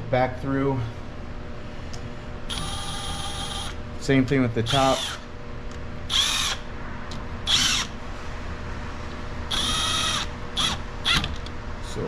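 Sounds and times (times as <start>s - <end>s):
cordless impact driver spinning bolts: 6.1s - 6.6s, 7.5s - 7.9s, 9.5s - 11.4s.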